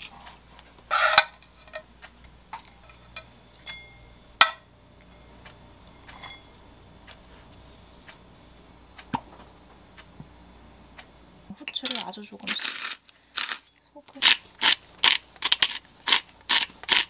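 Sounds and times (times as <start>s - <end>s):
metal tongs clinking on bowl: 1.5s - 4.1s, 6.1s - 6.5s, 11.7s - 12.6s.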